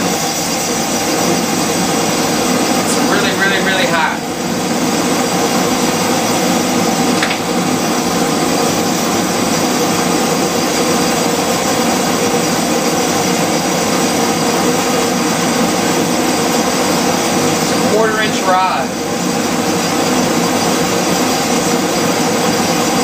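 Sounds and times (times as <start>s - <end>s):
gas burner roaring: 0.0s - 23.0s
hair dryer fan rushing: 0.0s - 23.0s.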